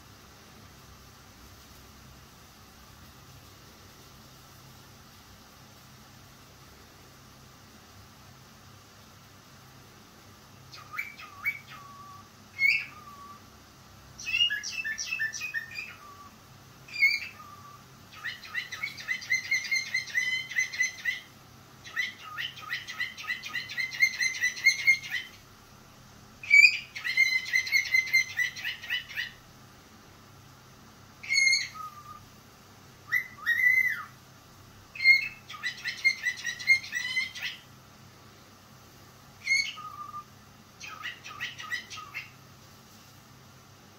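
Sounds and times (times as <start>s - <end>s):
cockatiel chirping and warbling: 10.7s - 13.4s, 14.2s - 16.3s, 16.9s - 25.4s, 26.4s - 29.4s, 31.2s - 32.3s, 33.1s - 34.2s, 34.9s - 37.7s, 39.4s - 42.4s.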